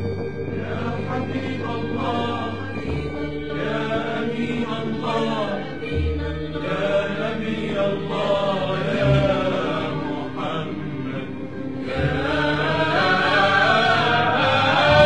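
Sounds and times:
devotional chant singing: 0.0s - 15.0s
low held notes: 0.0s - 15.0s.

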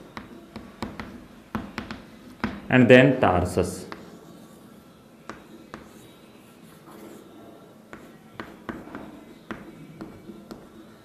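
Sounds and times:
chalk tapping on board: 0.1s - 2.7s, 3.9s - 4.2s, 5.2s - 6.1s, 7.9s - 10.9s
chalk scratching on blackboard: 3.9s - 11.0s.

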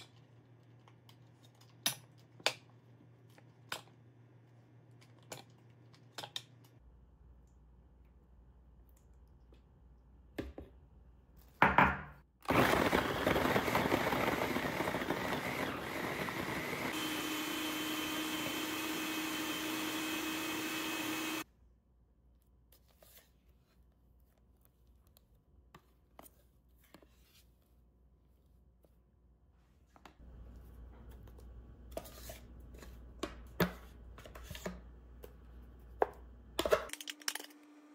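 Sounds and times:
food processor blending: 12.4s - 21.4s.

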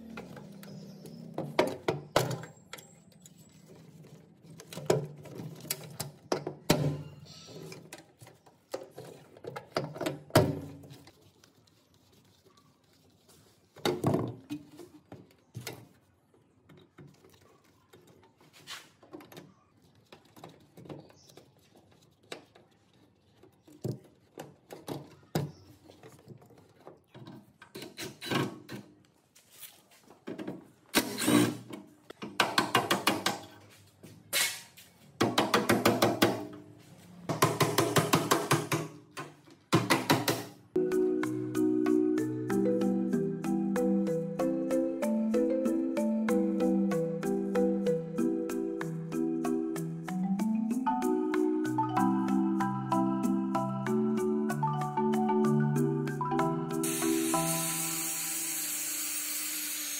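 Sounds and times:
tools and parts knocking and clicking: 1.4s - 3.4s, 4.5s - 11.0s, 30.2s - 30.7s, 31.6s - 33.6s, 35.2s - 36.7s, 37.3s - 40.6s.

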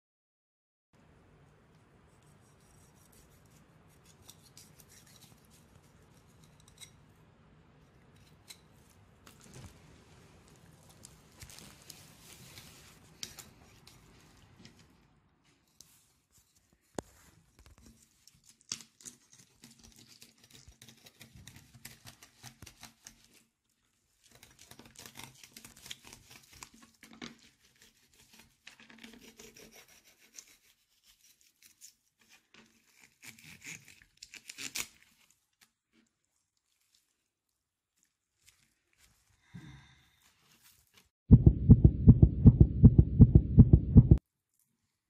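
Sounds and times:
knife rasping through fish: 2.3s - 7.0s, 24.2s - 35.3s.

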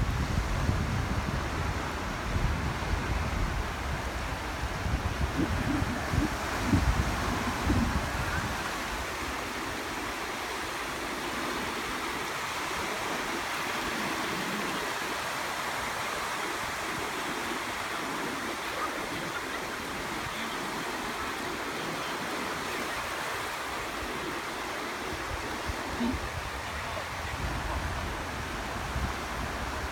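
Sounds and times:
wind rumble on microphone: 0.0s - 10.1s, 25.1s - 29.9s.

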